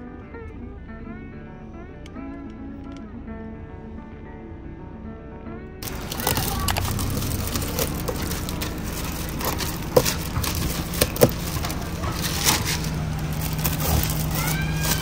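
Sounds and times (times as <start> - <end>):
plastic film peeling and crinkling: 5.8 - 15.0.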